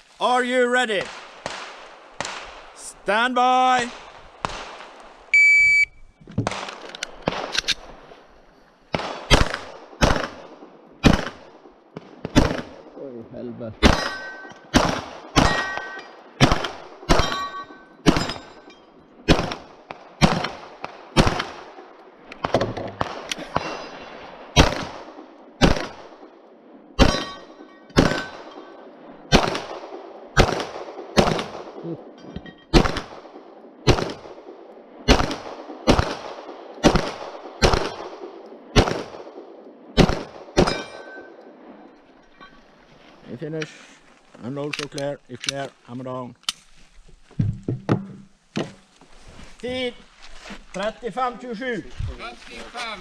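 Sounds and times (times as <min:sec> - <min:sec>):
pistol shots: 0:01.0 - 0:02.8, 0:03.9 - 0:05.0, 0:06.5 - 0:07.9, 0:08.9 - 0:12.9, 0:13.8 - 0:18.6, 0:19.2 - 0:26.3, 0:27.0 - 0:31.8, 0:32.7 - 0:41.4
steel targets ringing: 0:13.9 - 0:14.7, 0:15.4 - 0:16.3, 0:17.1 - 0:19.0, 0:27.0 - 0:28.8, 0:40.6 - 0:41.4.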